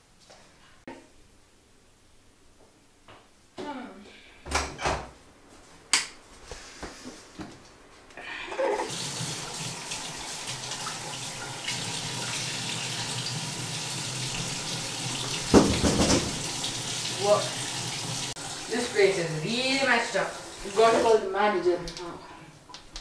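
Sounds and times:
tap water running into sink: 0:08.8 - 0:21.2.

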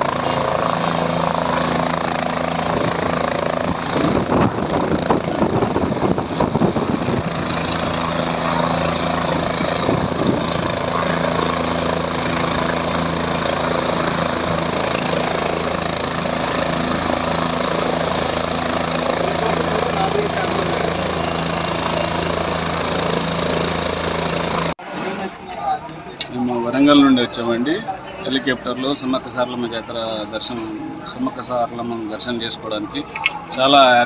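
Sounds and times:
rushing wind noise: 0:00.0 - 0:19.1
helicopter engine whine: 0:00.0 - 0:24.8.

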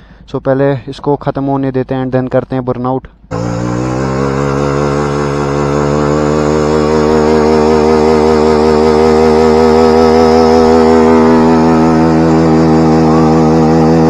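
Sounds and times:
motorcycle engine revving high: 0:03.3 - 0:14.0.

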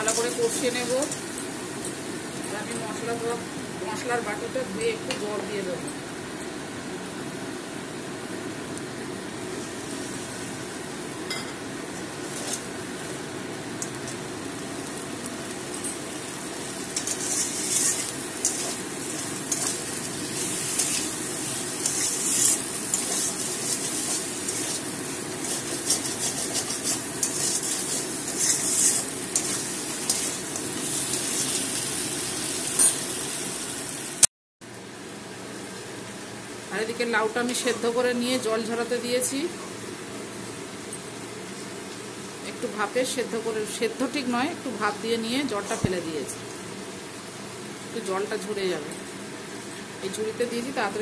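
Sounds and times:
food sizzling in a pan: 0:00.0 - 0:03.0, 0:12.0 - 0:34.3
metal spatula scraping a pan: 0:17.0 - 0:18.8, 0:21.8 - 0:30.4.

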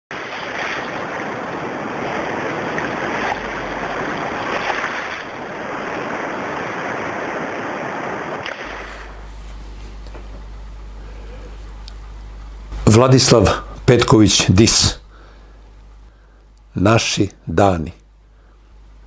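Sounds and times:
surf washing up a beach: 0:00.1 - 0:09.3
steady low hum: 0:00.1 - 0:19.0.

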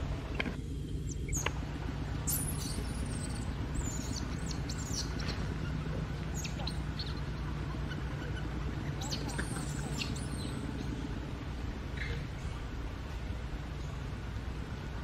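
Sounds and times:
low outdoor background hum: 0:00.0 - 0:15.0
high-pitched chirping calls: 0:02.2 - 0:11.0.

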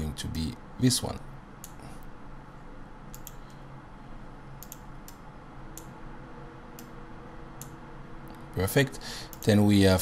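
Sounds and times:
low hum: 0:00.0 - 0:10.0
computer mouse clicking: 0:01.6 - 0:01.9, 0:03.1 - 0:03.6, 0:04.6 - 0:06.0, 0:06.7 - 0:07.0.

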